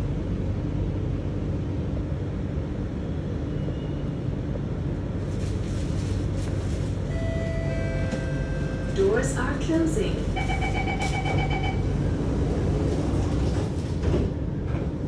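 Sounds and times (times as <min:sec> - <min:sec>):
train rumbling at platform: 0:00.0 - 0:15.0
steady tone: 0:07.1 - 0:11.9.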